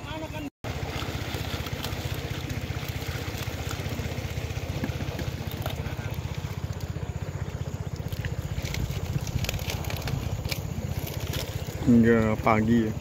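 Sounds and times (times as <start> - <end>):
small engine chugging: 0.0 - 13.0.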